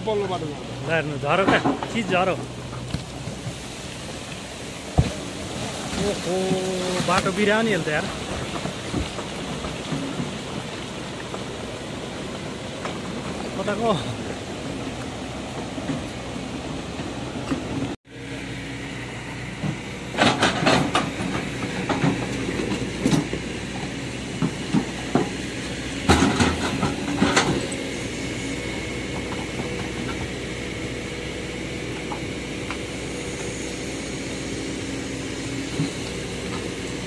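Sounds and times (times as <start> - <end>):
excavator diesel engine running: 0.0 - 37.0
bucket scraping earth and stones: 0.1 - 11.6.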